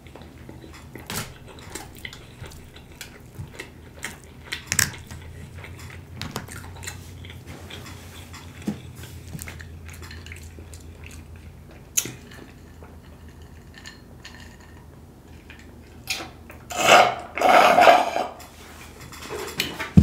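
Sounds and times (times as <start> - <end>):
slurping through a straw: 16.7 - 18.4.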